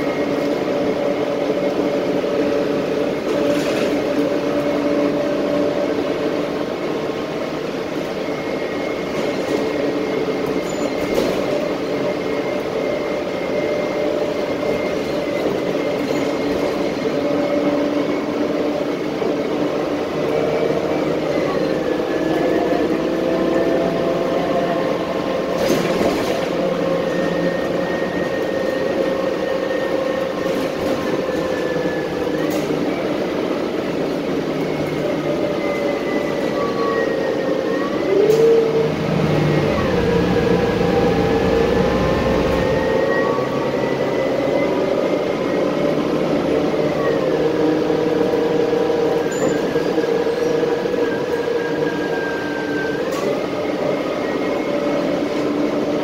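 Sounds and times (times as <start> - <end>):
bus engine and drivetrain noise: 0.0 - 56.0
rising and falling whine: 37.3 - 46.4.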